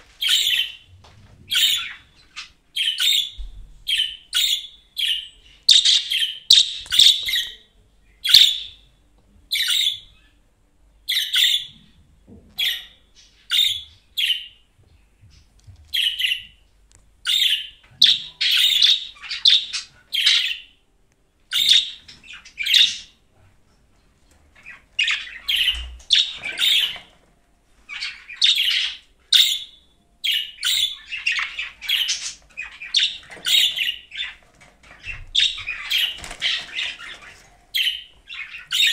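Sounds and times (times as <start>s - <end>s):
budgerigar chirping: 0.2s - 0.8s, 1.5s - 7.6s, 8.2s - 8.8s, 9.5s - 10.0s, 11.1s - 11.8s, 12.6s - 14.6s, 16.0s - 16.6s, 17.2s - 20.8s, 21.5s - 23.2s, 24.6s - 27.1s, 27.9s - 34.4s, 35.0s - 38.9s.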